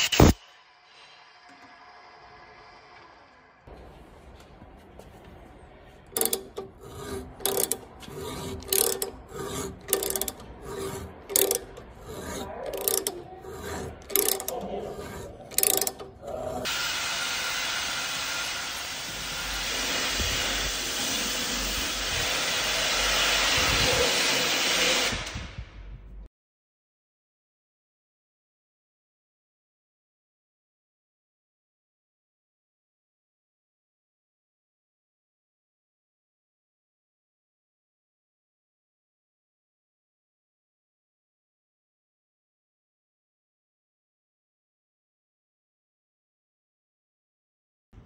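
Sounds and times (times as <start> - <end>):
power tool running: 6.1 - 25.4.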